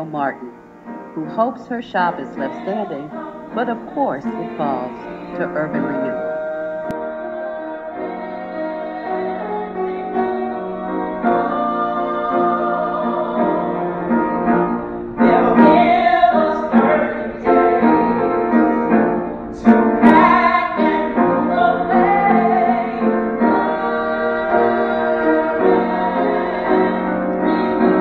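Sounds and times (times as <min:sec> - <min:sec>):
piano chords: 0:00.0 - 0:28.0
person singing: 0:01.2 - 0:14.1.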